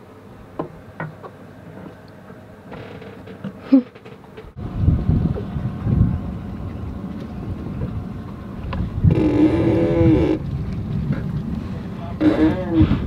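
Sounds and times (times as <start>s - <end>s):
wind rumble on microphone: 4.4s - 13.0s.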